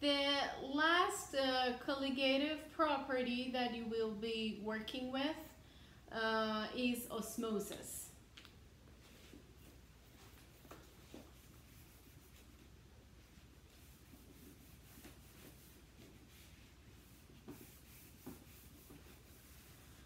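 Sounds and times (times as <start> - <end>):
eraser rubbing whiteboard: 9.1 - 20.0.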